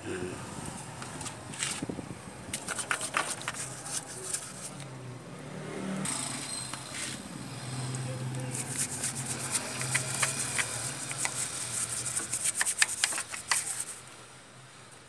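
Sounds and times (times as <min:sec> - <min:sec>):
wrench tapping on engine: 0:09.4 - 0:13.8.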